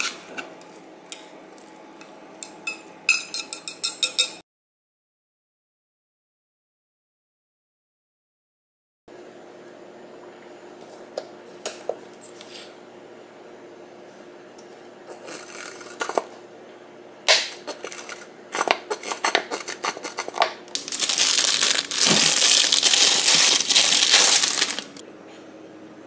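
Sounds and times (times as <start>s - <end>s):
plastic bottle crinkling: 20.7s - 25.0s.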